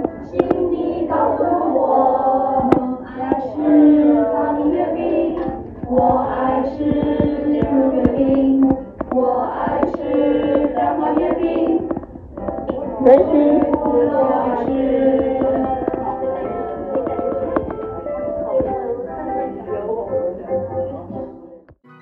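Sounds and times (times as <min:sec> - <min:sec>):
children singing together: 0:00.0 - 0:20.0
sharp taps: 0:05.1 - 0:18.9.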